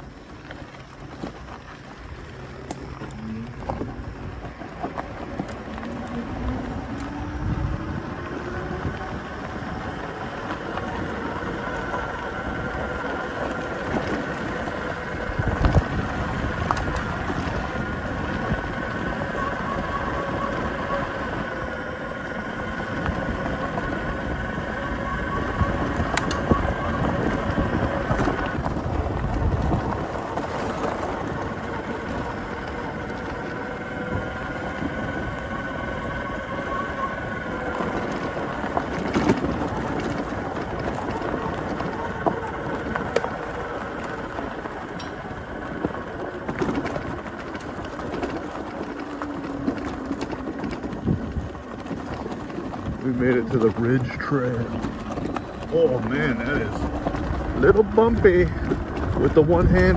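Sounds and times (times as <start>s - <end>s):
electric motor whine: 0.0s - 59.9s
tyres rumbling on dirt: 0.0s - 59.9s
wind buffeting microphone: 0.0s - 59.9s.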